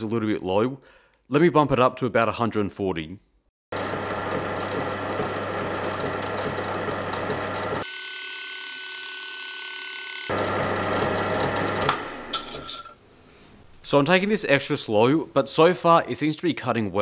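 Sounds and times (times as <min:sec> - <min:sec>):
metal lathe running: 0:03.7 - 0:12.7.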